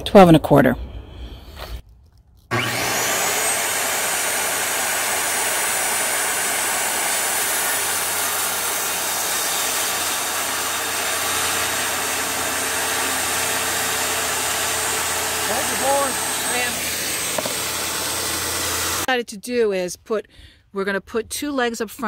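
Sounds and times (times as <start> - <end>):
circular saw cutting wood: 2.5 - 19.1.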